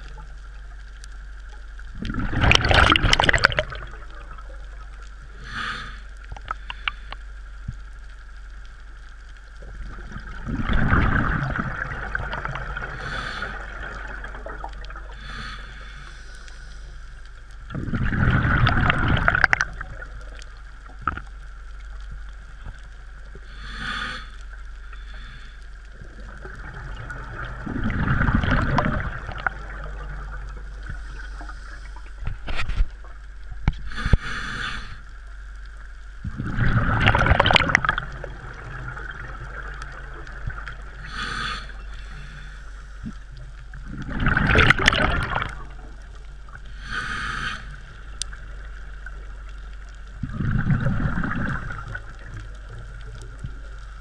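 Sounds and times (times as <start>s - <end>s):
exhaled bubbles rushing underwater: 0.0s - 5.6s, 9.6s - 15.5s, 17.5s - 23.4s, 25.9s - 34.1s, 36.2s - 42.4s, 43.0s - 54.0s
regulator hiss: 15.0s - 17.6s, 33.2s - 35.6s, 41.0s - 43.4s, 46.1s - 49.2s.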